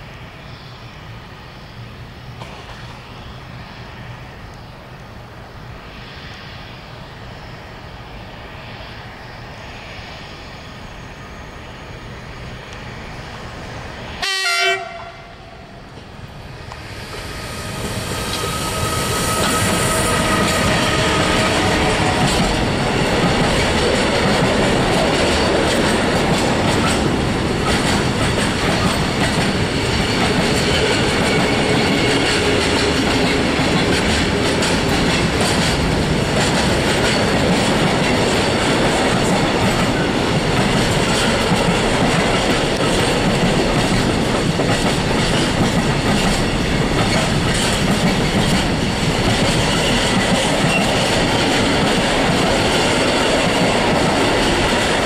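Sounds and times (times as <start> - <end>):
freight train wheels rumbling: 0.0 - 55.0.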